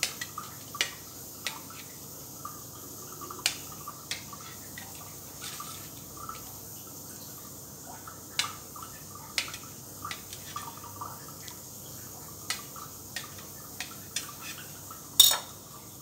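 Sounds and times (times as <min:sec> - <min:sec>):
knife clicking against metal plate: 0:15.2 - 0:15.5.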